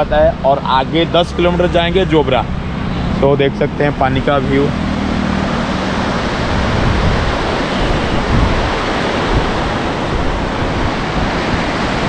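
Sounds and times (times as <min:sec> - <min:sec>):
wind buffeting microphone: 0:00.0 - 0:12.0
river water rushing: 0:00.3 - 0:12.0.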